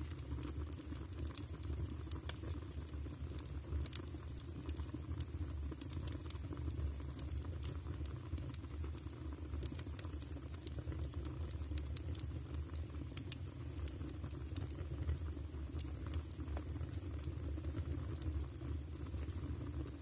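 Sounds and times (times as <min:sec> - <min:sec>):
fire rumbling: 0:00.0 - 0:20.0.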